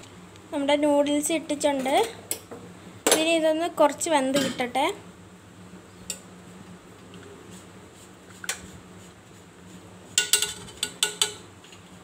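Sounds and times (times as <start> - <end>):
faint steady hum: 0.0 - 12.0
spoon clinking against metal pot: 10.2 - 11.4.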